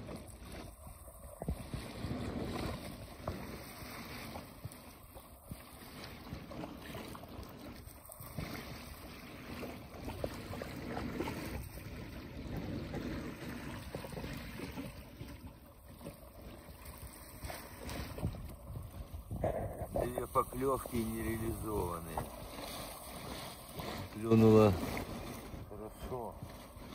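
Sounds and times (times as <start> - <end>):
small waves lapping: 0.0 - 26.9
wind on microphone: 16.9 - 26.9.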